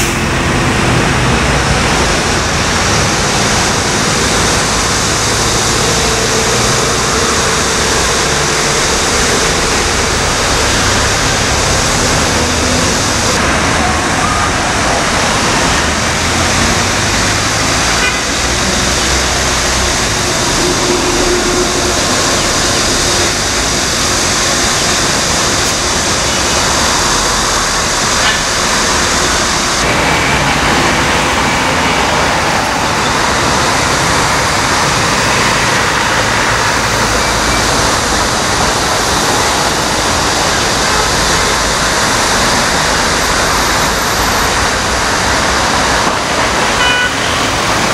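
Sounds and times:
dense road traffic: 0.0s - 47.9s.

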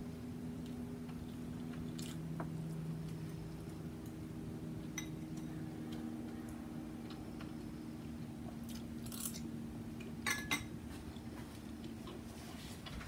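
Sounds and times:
low hum: 0.0s - 13.0s
chewing and mouth sounds: 0.6s - 4.2s.

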